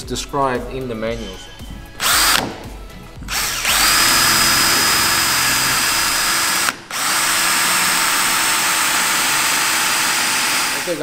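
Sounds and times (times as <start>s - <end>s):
power drill boring into metal: 2.0s - 2.5s, 3.3s - 11.0s.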